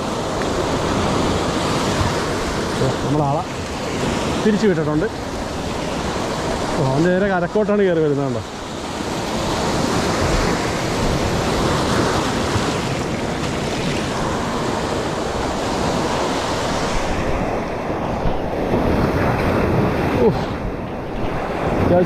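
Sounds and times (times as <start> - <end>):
surf breaking on beach: 0.0 - 22.0
wind buffeting microphone: 8.2 - 22.0.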